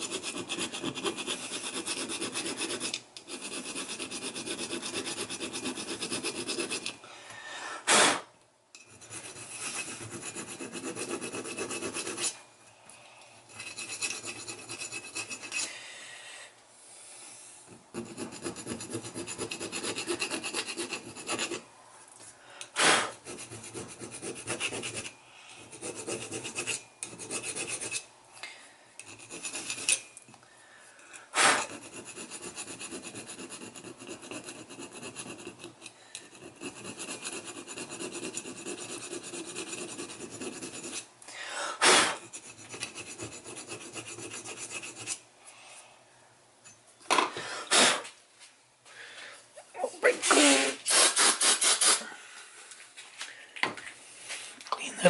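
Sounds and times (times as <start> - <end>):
hand file rasping on metal: 0.0 - 7.0, 8.8 - 12.4, 13.5 - 15.7, 17.7 - 21.6, 22.8 - 28.1, 29.0 - 30.2, 31.1 - 41.1, 41.8 - 45.2.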